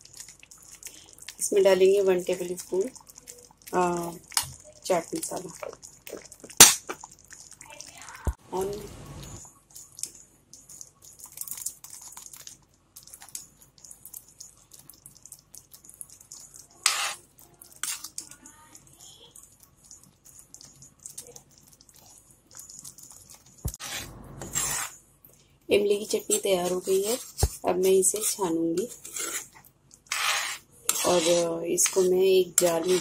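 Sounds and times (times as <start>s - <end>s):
spoon stirring thick chutney: 0.0s - 8.0s, 9.2s - 25.0s, 25.7s - 33.0s
spoon scraping and clicking on pan: 16.3s - 17.2s, 26.2s - 33.0s.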